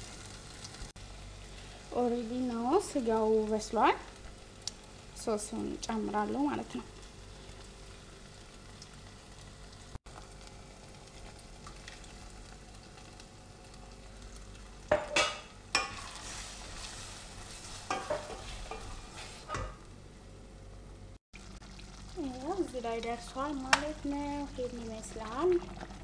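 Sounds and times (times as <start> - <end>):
meat sizzling in a pan: 0.0 - 19.5
wooden spoon scraping a pan: 15.8 - 19.6.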